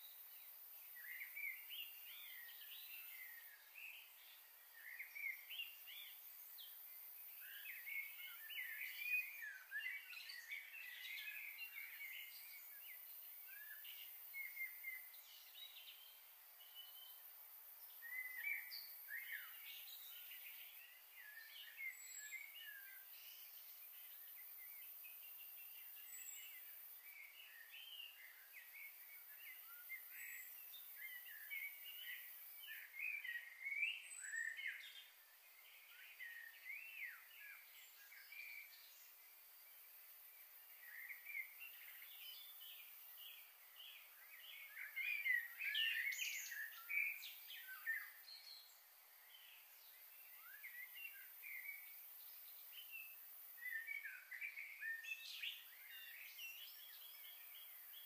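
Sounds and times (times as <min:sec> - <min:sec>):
small birds chirping: 0:00.0 - 0:58.0.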